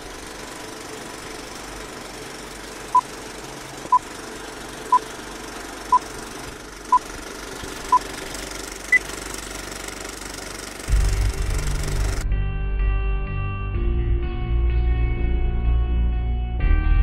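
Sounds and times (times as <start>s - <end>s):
film projector rattle and crackle: 0.0s - 10.9s.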